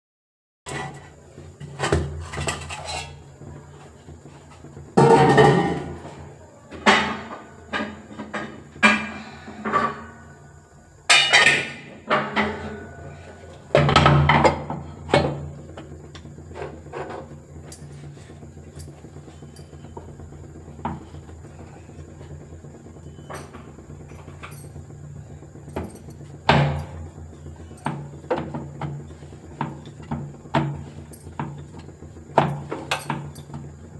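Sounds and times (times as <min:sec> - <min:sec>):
metal pots and utensils clanking: 0:00.7 - 0:03.3, 0:04.5 - 0:06.1, 0:06.7 - 0:10.2, 0:11.1 - 0:15.5, 0:32.4 - 0:33.6.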